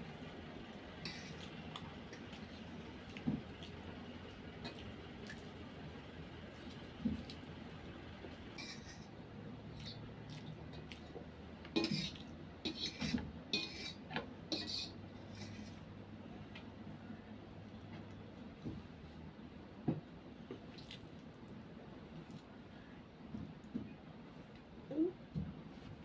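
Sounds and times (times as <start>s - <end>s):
cutlery clinking on metal plate: 8.6s - 9.1s
cutlery scraping metal plate: 8.6s - 9.1s, 11.8s - 15.8s.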